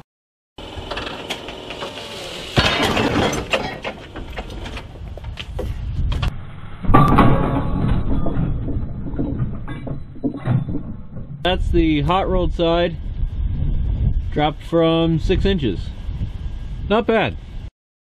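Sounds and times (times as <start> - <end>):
truck body rattling: 2.6 - 5.3, 6.9 - 11.7
heavy metal impact on rock: 6.8 - 11.4.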